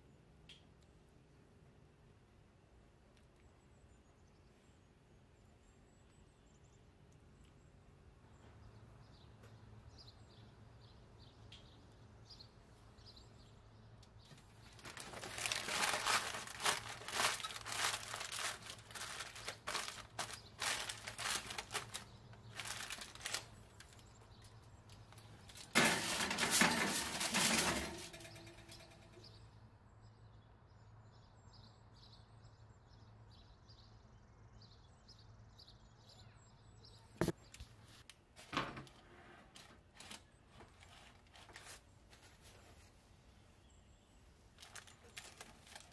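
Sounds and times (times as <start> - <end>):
aluminium foil crinkling: 14.3 - 29.0, 39.5 - 42.6, 44.5 - 45.9.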